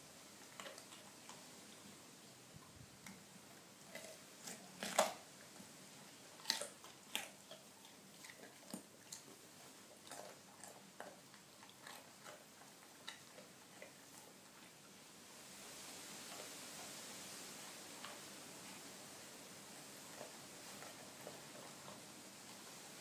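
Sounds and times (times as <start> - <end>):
dog chewing carrot crunches: 0.4 - 1.6, 2.6 - 5.6, 6.2 - 14.8, 19.6 - 22.7.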